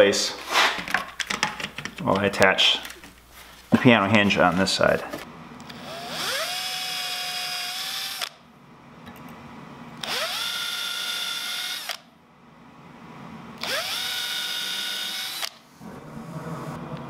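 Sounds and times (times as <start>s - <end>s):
power drill whining: 5.7s - 8.4s, 10.0s - 12.0s, 13.6s - 15.6s.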